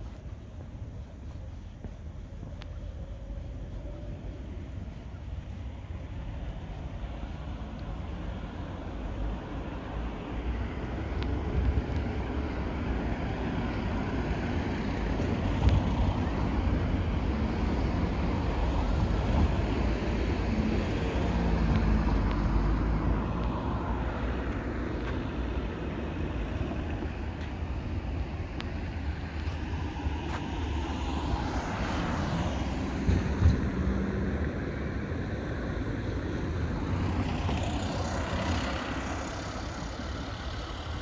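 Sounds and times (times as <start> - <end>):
faint engine hum: 0.0 - 31.1
distant traffic rumble: 0.0 - 41.0.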